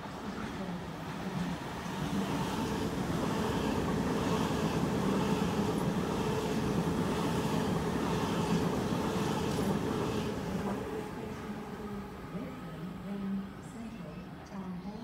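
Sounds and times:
train wheels rumbling on rails: 0.0s - 12.4s.

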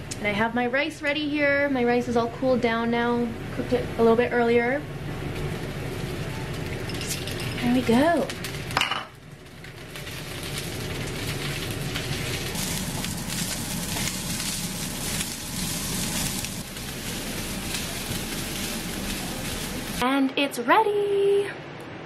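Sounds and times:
rice sizzling in a frying pan: 5.0s - 20.0s.

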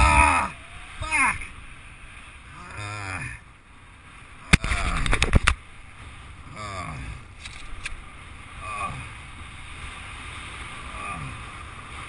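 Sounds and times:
person calling out: 0.0s - 1.5s
wind rumble on microphone: 0.0s - 12.0s.

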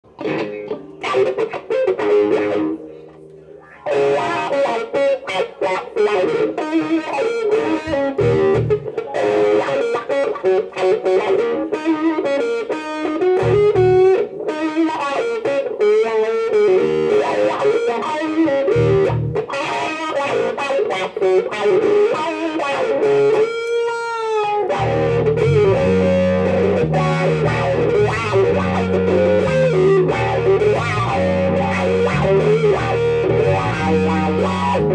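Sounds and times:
electric guitar lead: 0.0s - 34.9s
electric bass playing: 0.1s - 3.0s, 6.0s - 15.4s, 16.5s - 19.6s, 24.6s - 34.9s.

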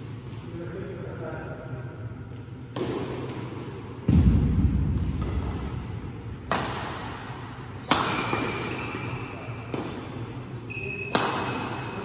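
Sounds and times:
badminton racket hitting shuttlecock: 6.5s - 8.8s.

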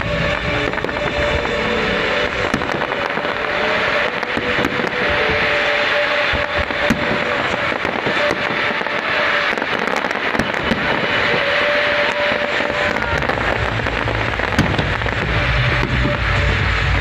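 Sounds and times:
fireworks crackling and popping: 0.0s - 17.0s.

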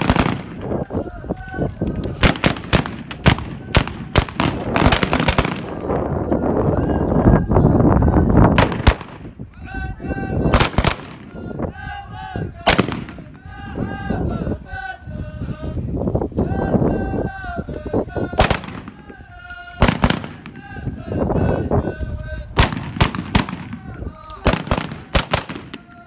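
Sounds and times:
gunshots: 0.0s - 0.7s, 2.2s - 5.9s, 8.6s - 9.3s, 10.5s - 11.3s, 12.6s - 13.4s, 18.4s - 19.1s, 19.7s - 20.8s, 22.6s - 26.0s
men chanting: 0.0s - 26.0s.

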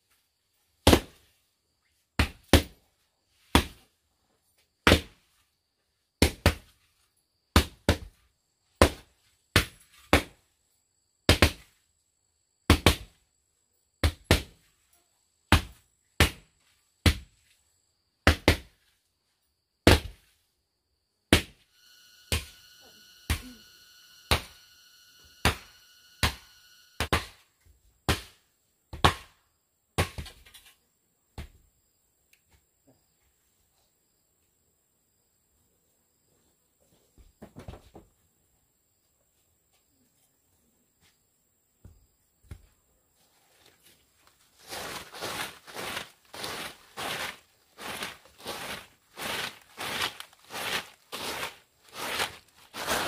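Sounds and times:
steady multi-tone buzz: 21.7s - 27.2s.

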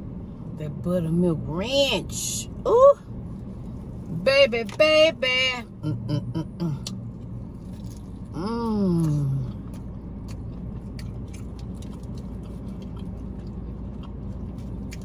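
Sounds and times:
steady low hum: 0.0s - 15.0s
chewing fried chicken: 6.8s - 15.0s.

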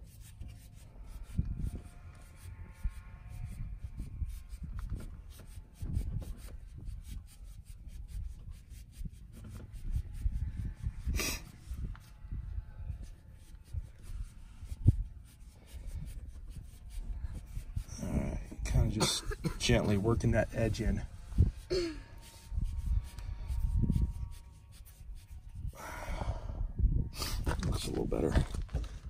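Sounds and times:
scraping rustle: 27.3s - 29.0s.

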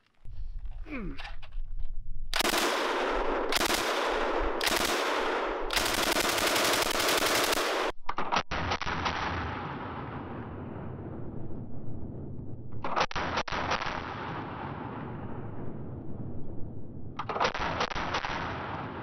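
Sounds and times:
machine gun automatic fire: 2.4s - 9.3s, 17.2s - 19.0s
sharp gunshot cracks: 2.4s - 10.3s, 17.2s - 19.0s.

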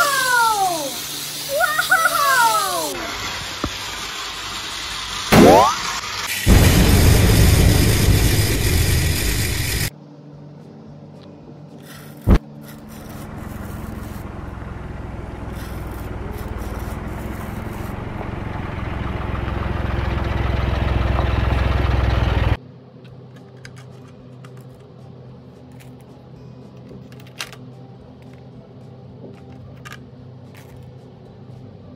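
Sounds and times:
engine-like running sound: 3.2s - 9.9s, 12.3s - 22.6s.

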